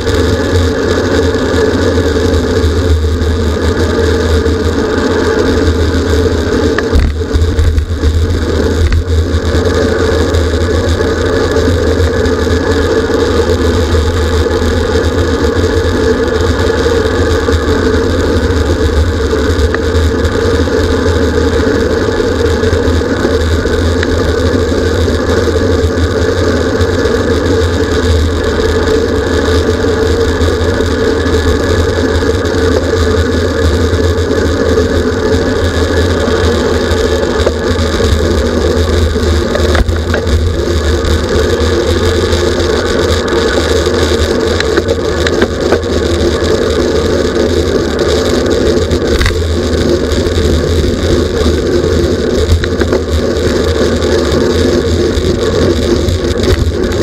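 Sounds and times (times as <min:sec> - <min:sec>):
bicycle road noise: 0:00.0 - 0:57.0
wind buffeting microphone: 0:00.0 - 0:57.0.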